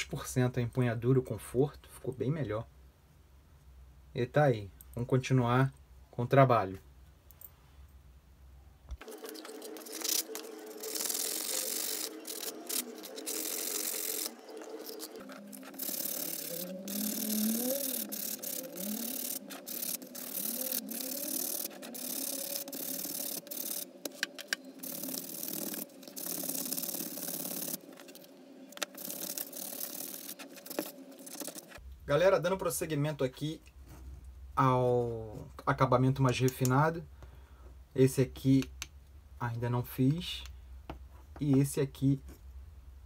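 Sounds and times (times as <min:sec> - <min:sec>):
sandpaper rasping on wood: 0:09.5 - 0:23.8.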